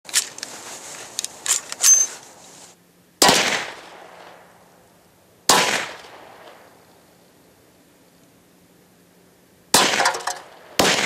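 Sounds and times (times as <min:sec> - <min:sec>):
metallic gun handling clicks: 0:01.2 - 0:02.1
gunshot: 0:03.2 - 0:04.0, 0:05.5 - 0:06.6, 0:09.7 - 0:11.0.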